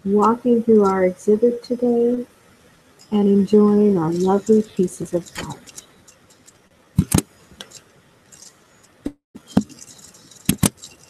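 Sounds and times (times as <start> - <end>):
faint background hiss: 0.0 - 11.0
sharp clicks and knocks: 5.3 - 11.0.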